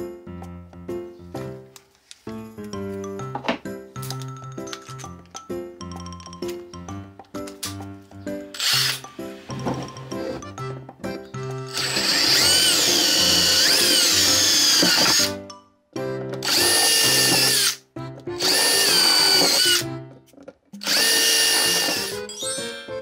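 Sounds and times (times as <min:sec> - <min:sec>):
background music: 0:00.0 - 0:23.0
drill bit cutting plastic: 0:08.6 - 0:09.1, 0:11.4 - 0:15.4, 0:16.4 - 0:20.0, 0:20.8 - 0:22.3.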